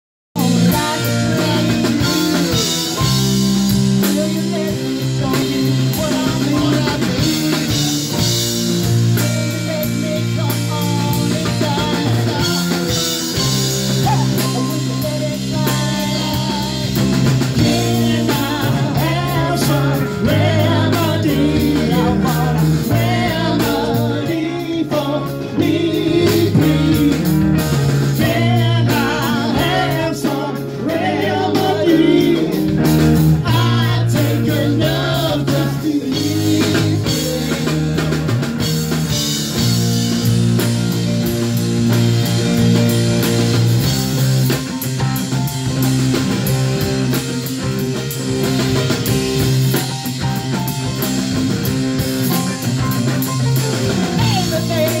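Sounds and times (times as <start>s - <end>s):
woman singing: 0.4s - 3.0s, 17.6s - 27.4s, 54.2s - 55.0s
bass guitar: 0.4s - 55.0s
drum kit: 0.4s - 55.0s
electric guitar: 0.4s - 55.0s.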